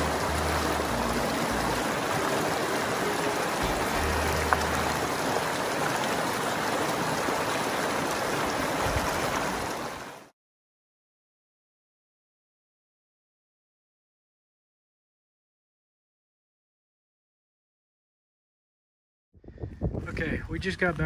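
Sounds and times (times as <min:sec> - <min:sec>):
creek water rushing over rocks: 0:00.0 - 0:10.3.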